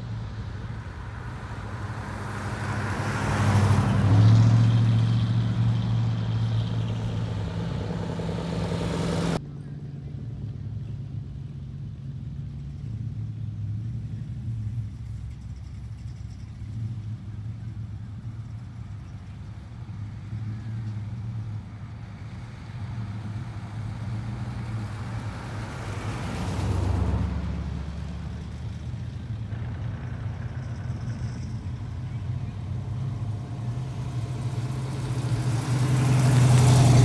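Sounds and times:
car driving past: 0.0s - 9.4s, 20.2s - 37.0s
car engines running at low speed: 0.0s - 37.0s.

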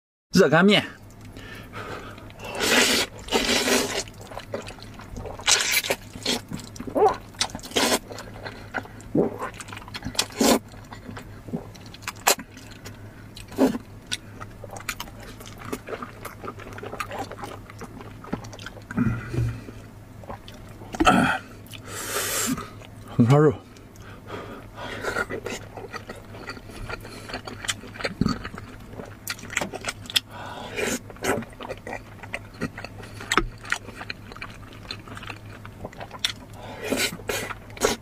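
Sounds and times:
person slurping noodles: 2.4s - 6.4s.

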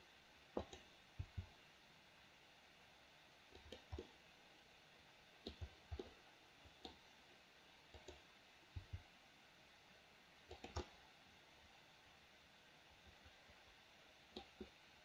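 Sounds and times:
faint room hiss: 0.0s - 15.0s
mouse and keyboard clicking: 0.6s - 1.4s, 3.6s - 4.1s, 5.5s - 6.1s, 7.9s - 8.2s, 10.5s - 10.9s, 14.4s - 14.7s.

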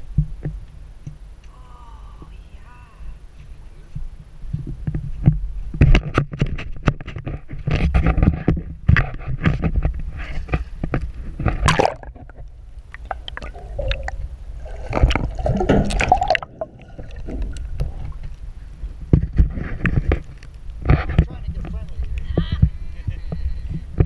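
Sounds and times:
water sloshing and gurgling: 4.6s - 22.8s.

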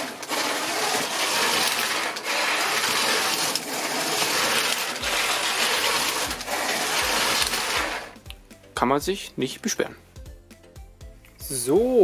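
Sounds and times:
toy train motors whirring: 0.0s - 8.2s
wheels rolling on plastic rails: 0.0s - 8.2s.

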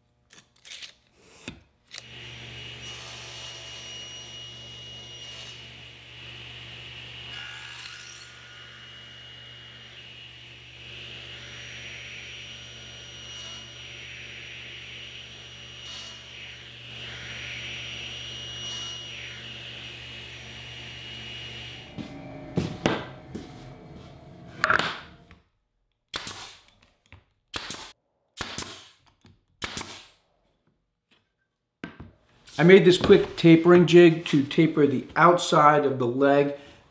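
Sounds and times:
table saw whining: 1.9s - 25.4s
brad nailer firing shots: 26.1s - 26.6s, 27.5s - 29.0s, 29.6s - 30.2s.

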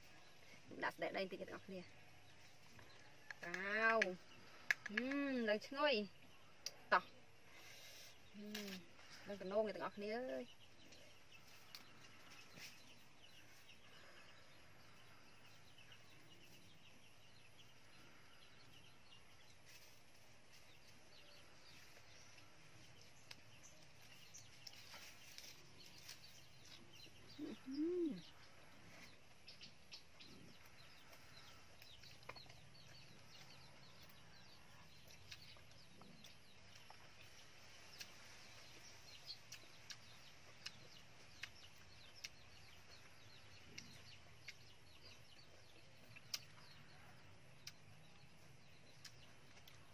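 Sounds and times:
faint bird calls: 27.1s - 29.2s.

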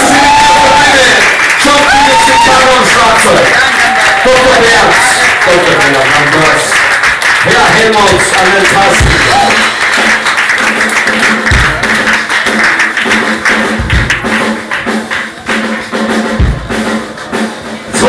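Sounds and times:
live band music: 4.6s - 18.0s
deep thump: 11.5s - 12.0s, 13.7s - 14.4s, 16.4s - 16.8s.

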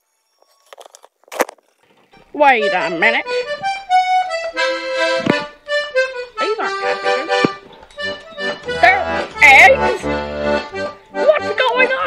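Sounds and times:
background music of held notes: 2.2s - 12.0s.

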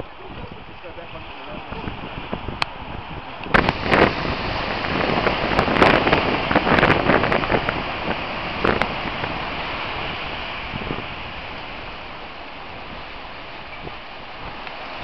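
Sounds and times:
surf rushing: 0.0s - 15.0s
wind buffeting microphone: 0.0s - 15.0s.

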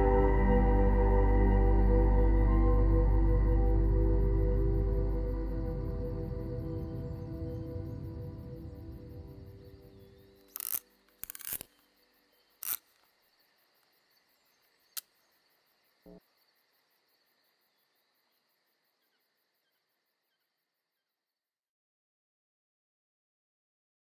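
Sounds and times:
high insect-like trill: 0.0s - 13.1s
sharp clicks: 10.5s - 11.8s.

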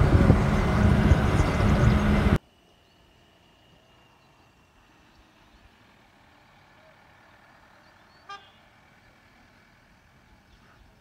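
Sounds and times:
faint outdoor ambience: 0.0s - 11.0s
vehicle horn toot: 8.2s - 8.7s.

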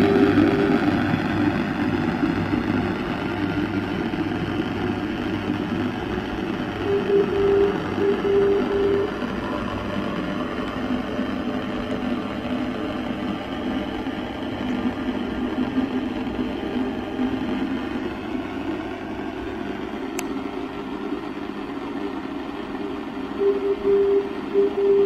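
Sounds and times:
morse code tone: 0.0s - 1.5s, 6.6s - 11.9s, 23.4s - 25.0s
radio static and hiss: 0.0s - 18.6s
steady low hum: 0.0s - 25.0s.

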